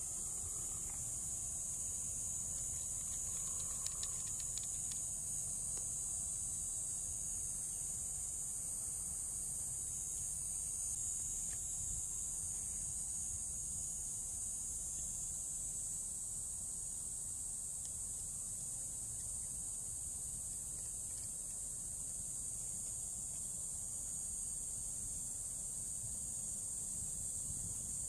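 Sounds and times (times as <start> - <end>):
high-pitched insect chorus: 0.0 - 28.0
faint clicks: 2.7 - 5.1.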